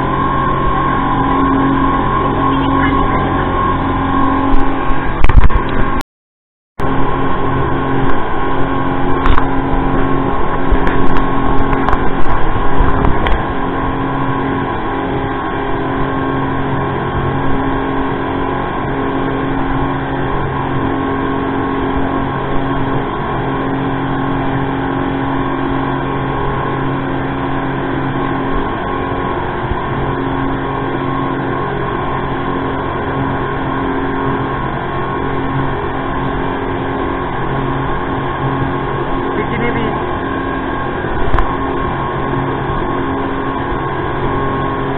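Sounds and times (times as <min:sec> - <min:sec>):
speedboat engine droning: 0:00.0 - 0:06.0, 0:06.8 - 0:44.9
water rushing along hull: 0:00.0 - 0:06.0, 0:06.8 - 0:44.9.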